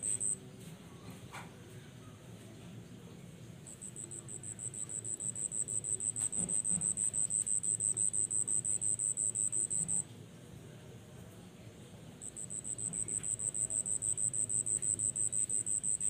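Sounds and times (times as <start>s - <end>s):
insect chirping in pulsed trill: 0.0s - 0.4s, 3.7s - 10.0s, 12.2s - 16.0s.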